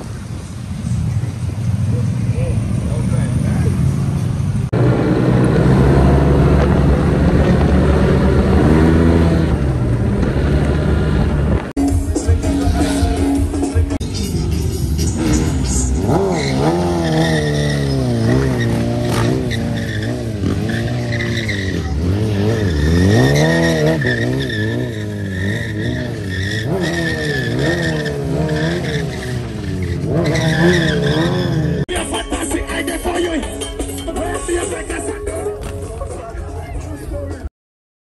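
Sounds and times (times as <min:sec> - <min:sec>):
motorcycle engine revving: 0:00.8 - 0:31.9
tyre skidding and squealing: 0:14.3 - 0:31.9.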